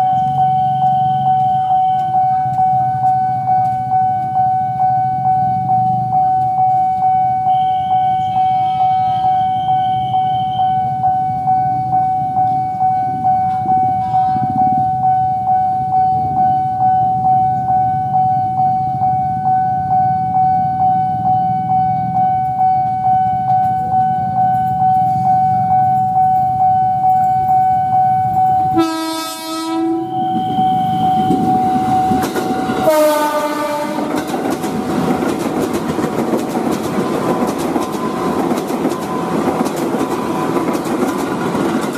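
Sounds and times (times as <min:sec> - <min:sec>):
level crossing bell dinging: 0:00.0 - 0:29.2
train wheels clickety-clack: 0:00.1 - 0:04.4, 0:30.4 - 0:41.9
train horn blasts: 0:13.9 - 0:14.8, 0:28.7 - 0:31.4, 0:32.5 - 0:34.3.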